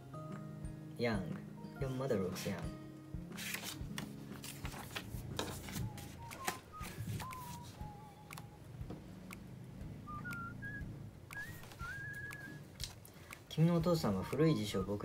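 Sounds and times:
paper rustling and clicks: 3.4 - 7.7
soft whistling: 5.6 - 8.8, 9.9 - 12.8, 13.5 - 15.0.

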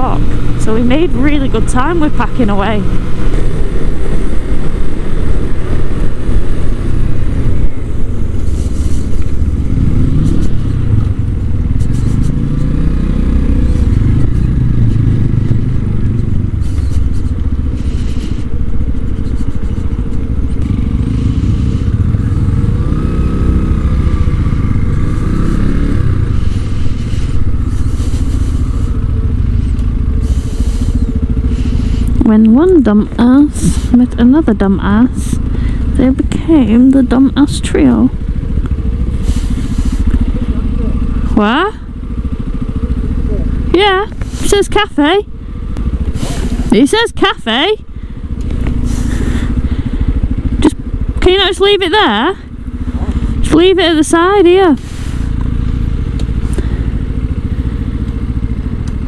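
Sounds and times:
wind rumble on camera: 0.0 - 36.9
motorcycle engine revving: 0.0 - 59.0.

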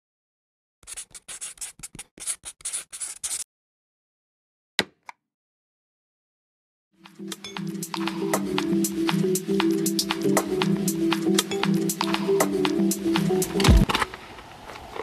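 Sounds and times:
pencil scribbling on paper: 0.8 - 3.4.

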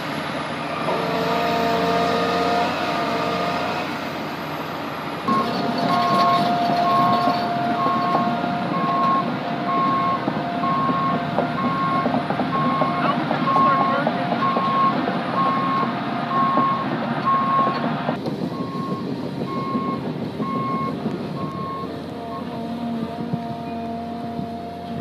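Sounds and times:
excavator diesel engine running: 0.0 - 25.0
travel alarm beeping: 5.3 - 17.8, 18.6 - 22.5.

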